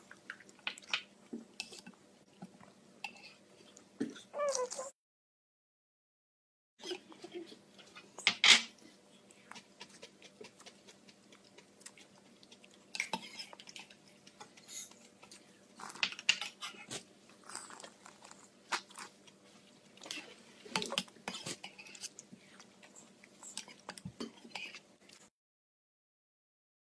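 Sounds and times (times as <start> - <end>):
child chewing: 0.0 - 4.9, 8.8 - 25.3.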